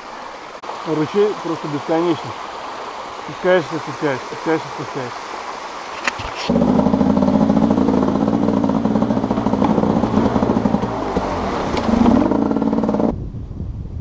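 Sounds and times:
motorcycle engine at low revs: 0:06.0 - 0:13.4.

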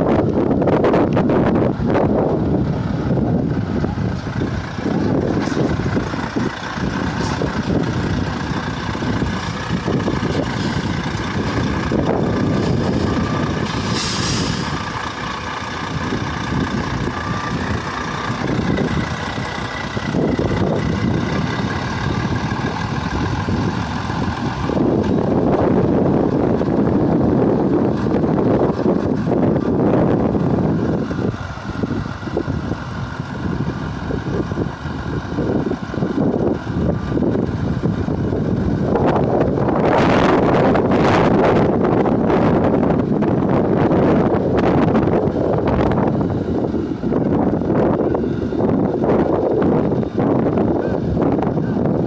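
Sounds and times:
truck diesel engine running: 0:00.0 - 0:52.0
wind rumble on microphone: 0:00.0 - 0:52.0
air brake hiss: 0:13.6 - 0:14.7.

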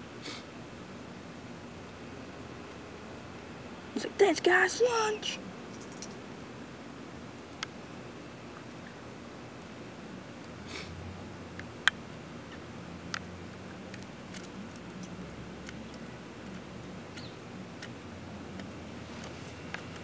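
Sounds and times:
low background noise: 0:00.0 - 0:20.0
small clicks: 0:05.7 - 0:06.2.

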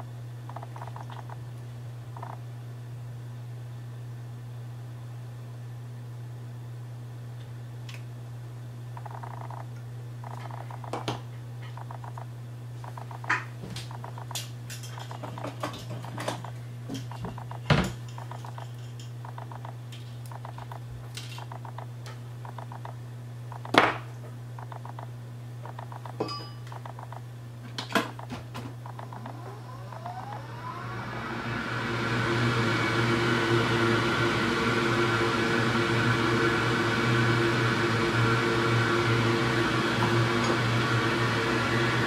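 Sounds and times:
steady low hum: 0:00.0 - 0:42.0
rapid rattling ticks: 0:00.5 - 0:01.4, 0:02.2 - 0:02.4, 0:09.0 - 0:11.0, 0:11.7 - 0:23.8, 0:24.6 - 0:27.3, 0:28.0 - 0:30.3.

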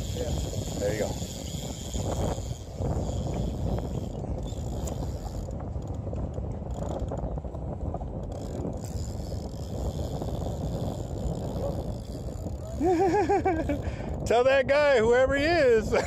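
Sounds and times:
fishing reel ratcheting click: 0:00.0 - 0:07.2, 0:08.2 - 0:12.7
wind rumbling on microphone: 0:00.0 - 0:16.0.

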